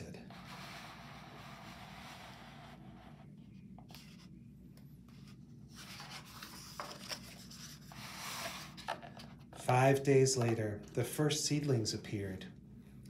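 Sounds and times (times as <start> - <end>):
book page turning: 5.1 - 9.7
paper rustling: 5.2 - 9.6.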